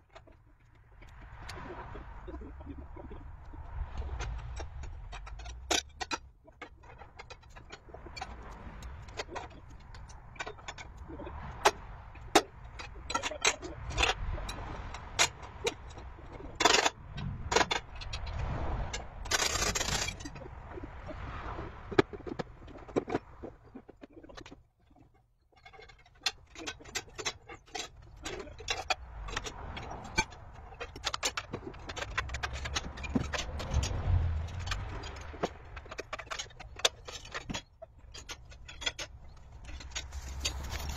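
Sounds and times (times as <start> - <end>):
metal scrape: 4.0 - 23.9, 28.1 - 40.9
metallic clinks and knocks: 21.9 - 40.9.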